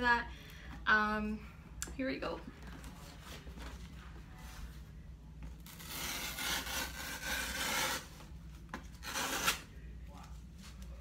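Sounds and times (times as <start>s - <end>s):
cardboard tear strip ripping: 5.6s - 8.1s, 9.0s - 9.7s.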